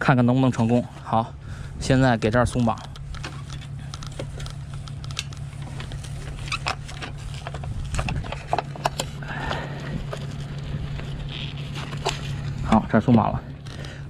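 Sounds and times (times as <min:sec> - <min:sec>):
low steady hum: 0:00.0 - 0:14.0
winch metal clicks and rattles: 0:02.2 - 0:09.2, 0:09.8 - 0:14.0
strap rubbing: 0:02.7 - 0:12.8.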